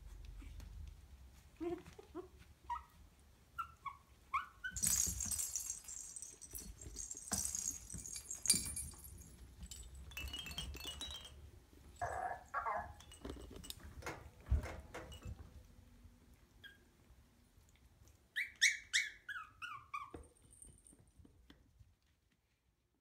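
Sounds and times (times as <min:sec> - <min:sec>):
puppy whimpering: 0:01.6 - 0:03.0, 0:12.0 - 0:13.0, 0:18.4 - 0:20.2
hanging toys rustling and jingling: 0:04.7 - 0:15.7, 0:20.2 - 0:21.3.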